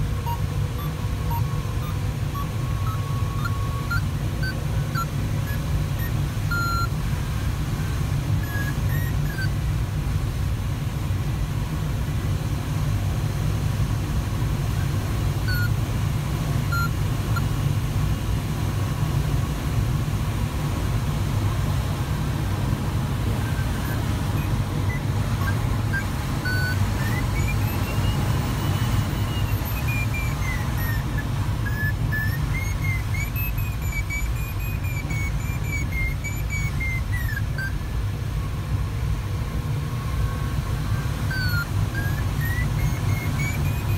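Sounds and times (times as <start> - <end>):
tone gliding up and down: 0.0 - 6.9, 23.4 - 37.8, 41.3 - 43.9
short electronic beeps: 0.0 - 9.6, 15.4 - 15.8, 16.6 - 17.6, 23.2 - 38.0, 40.0 - 43.9
airflow noise in cockpit: 0.0 - 43.9.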